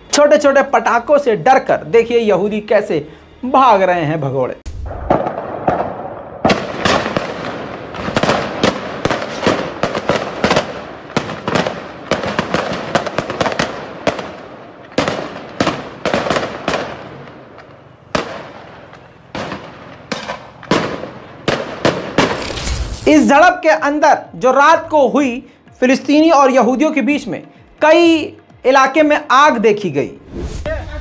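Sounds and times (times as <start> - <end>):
firecrackers banging: 4.8 - 23.4.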